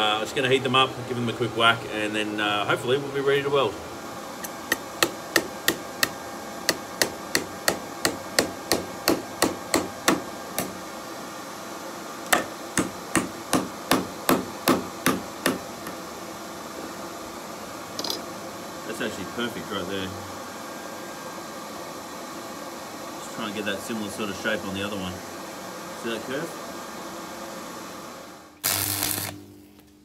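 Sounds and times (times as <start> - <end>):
hammer striking hot metal: 4.4 - 10.8, 12.3 - 16.0.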